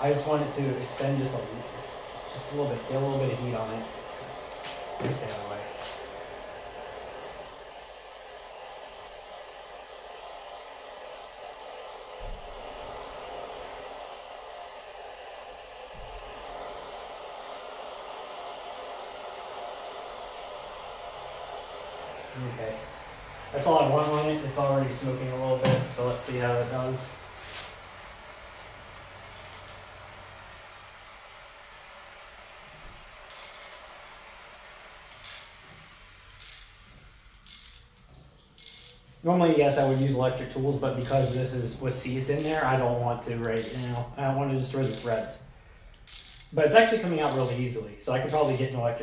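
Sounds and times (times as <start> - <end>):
gas torch flame hissing: 0.0 - 49.0
ratchet wrench clicking: 29.2 - 29.8, 33.3 - 33.8, 35.2 - 35.6, 36.4 - 36.8, 37.4 - 38.0, 38.6 - 39.1, 39.8 - 40.2, 42.4 - 42.7, 43.5 - 44.1, 44.8 - 45.3, 45.9 - 46.6, 47.2 - 47.6, 48.2 - 48.7.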